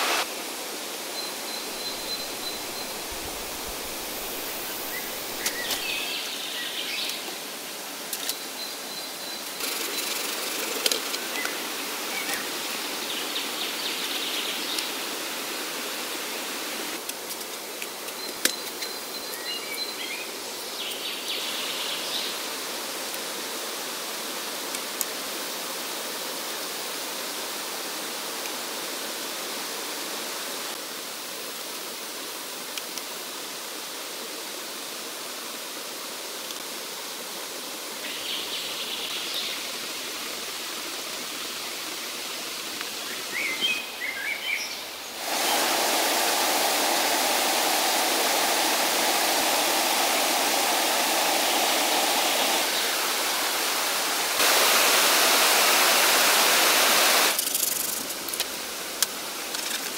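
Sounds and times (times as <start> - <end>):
steady outdoor hiss: 0.0 - 59.9
faint high chirps: 1.1 - 6.3.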